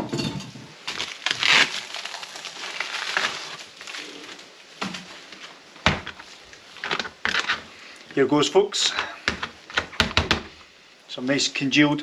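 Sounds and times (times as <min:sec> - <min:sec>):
food packaging crinkling: 0:00.8 - 0:08.2.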